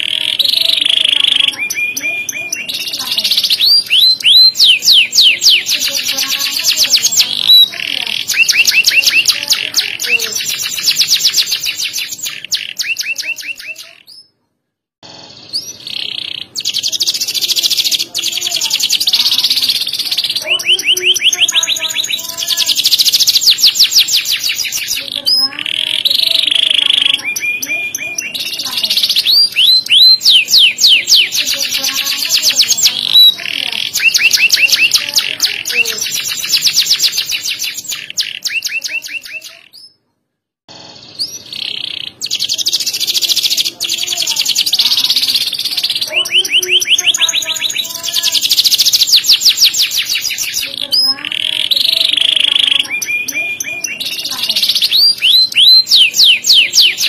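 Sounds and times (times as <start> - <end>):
canary singing trills: 0.0 - 40.0, 40.7 - 57.0.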